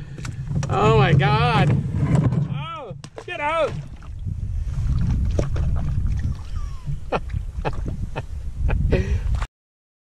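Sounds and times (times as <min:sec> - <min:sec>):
wind rumble on microphone: 0:00.0 - 0:09.5
fish slapping against canoe hull: 0:00.1 - 0:04.2, 0:04.9 - 0:07.0.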